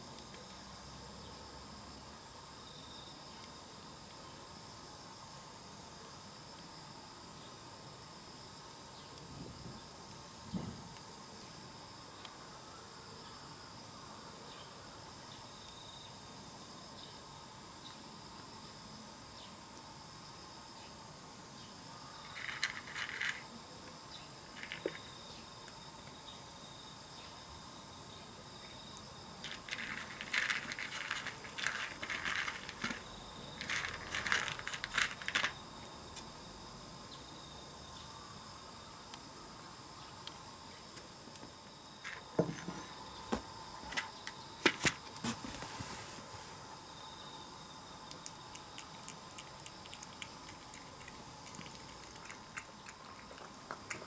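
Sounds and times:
cat crunching dry kibble: 0:22.3 - 0:23.5, 0:24.5 - 0:25.2, 0:29.4 - 0:35.6, 0:48.1 - 0:54.0.

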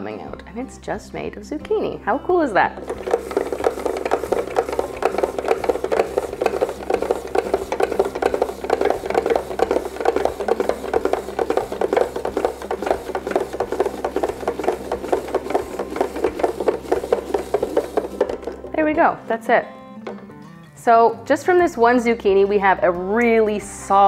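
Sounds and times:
spiralizer blades scraping zucchini: 0:02.7 - 0:19.0.

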